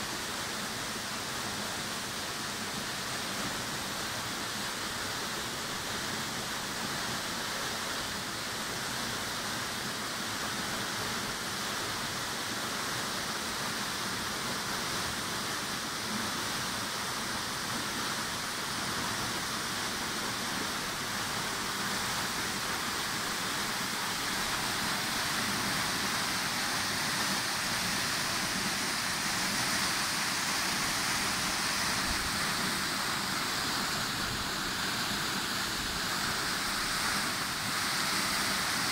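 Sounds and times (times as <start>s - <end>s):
waterfall rushing onto rocks: 0.0s - 38.9s.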